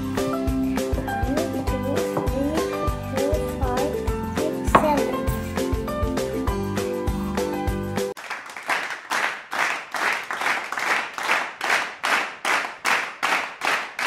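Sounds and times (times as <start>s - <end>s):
music track: 0.0s - 8.1s
rhythmic hand clapping: 8.1s - 14.0s.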